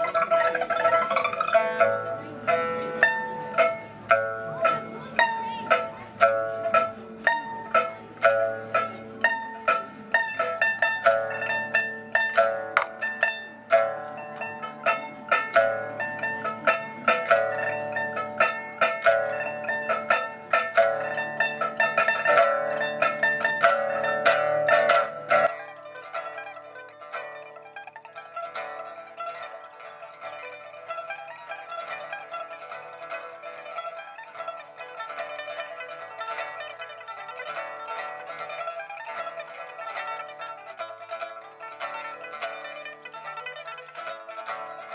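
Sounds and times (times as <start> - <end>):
plucked lute folk tune: 0.0 - 44.9.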